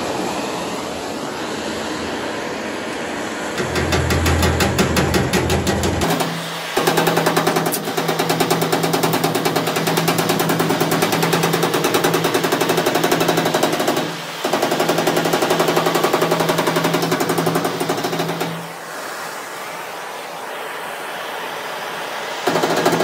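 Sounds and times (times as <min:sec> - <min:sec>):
metal strikes on steel panel: 0:03.6 - 0:14.2
steel panel ringing: 0:03.6 - 0:14.3.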